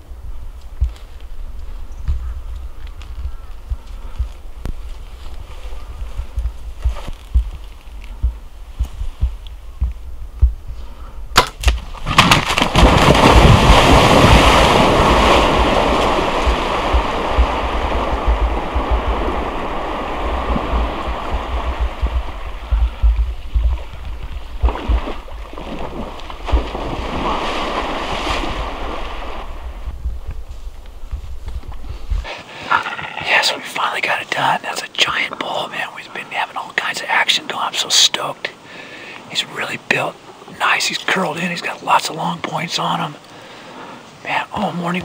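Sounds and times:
sharp crack: 0:11.3 - 0:19.1
moose splashing through water: 0:11.4 - 0:30.0.

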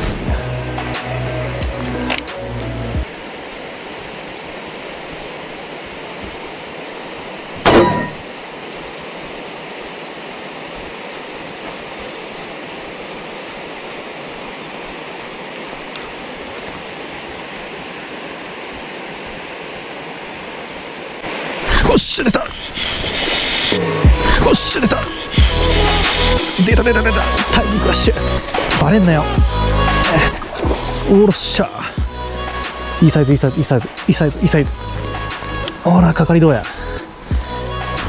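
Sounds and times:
outdoor background hiss: 0:00.0 - 0:38.0
ringing metallic clang: 0:07.6 - 0:08.2.

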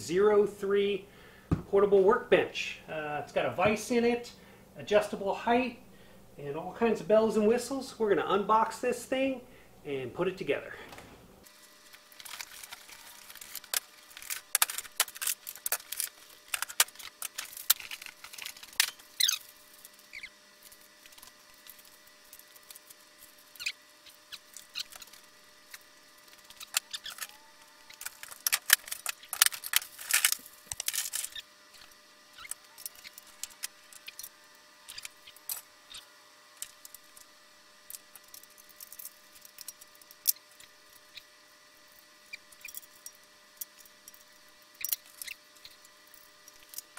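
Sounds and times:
metal parts clicking and knocking: 0:12.2 - 0:20.3, 0:24.0 - 0:34.3, 0:37.9 - 0:41.1.

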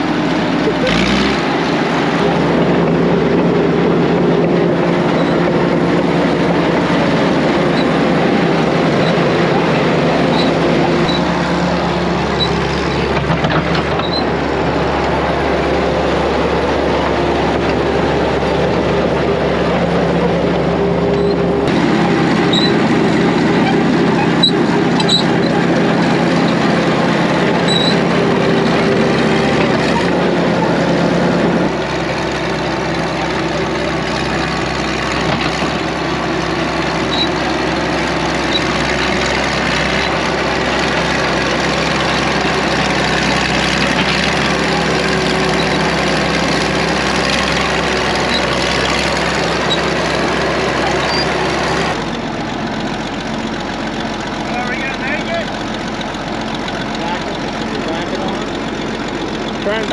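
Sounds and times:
diesel engine running: 0:00.0 - 0:59.9
short high squeaks: 0:10.2 - 0:11.3, 0:12.3 - 0:13.1, 0:13.7 - 0:14.3, 0:21.1 - 0:21.5, 0:22.4 - 0:22.8, 0:23.6 - 0:25.6, 0:27.6 - 0:28.8, 0:37.1 - 0:37.4, 0:50.8 - 0:51.4.

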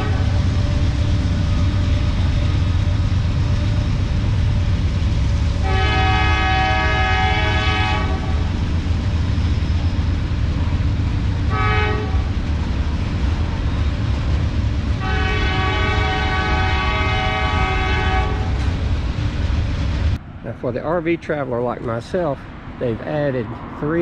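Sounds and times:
train horn blasts: 0:00.0 - 0:00.9, 0:05.6 - 0:08.5, 0:11.5 - 0:12.4, 0:15.0 - 0:18.7
freight train rumbling: 0:00.0 - 0:24.0.

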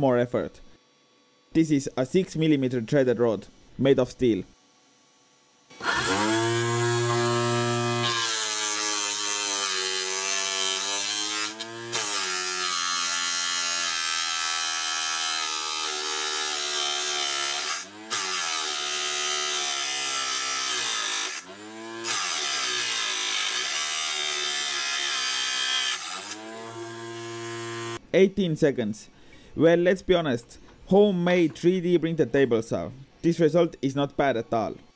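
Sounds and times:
saw motor humming: 0:05.7 - 0:28.0.

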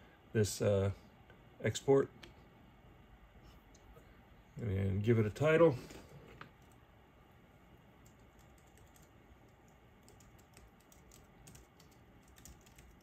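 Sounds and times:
faint keyboard typing: 0:06.2 - 0:06.8, 0:08.0 - 0:13.0.

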